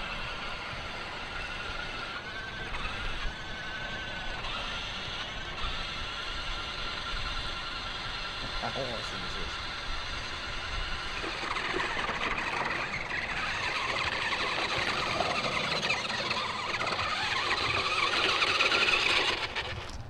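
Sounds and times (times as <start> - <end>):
electric motor whine: 0.0 - 20.0.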